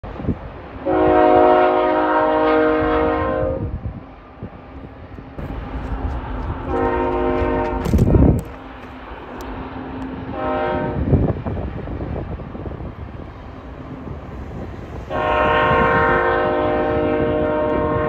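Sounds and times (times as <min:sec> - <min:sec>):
low rumble of diesel locomotives: 0:00.0 - 0:18.0
locomotive air horn: 0:00.8 - 0:03.8, 0:06.6 - 0:08.5, 0:10.3 - 0:11.2, 0:15.1 - 0:18.0.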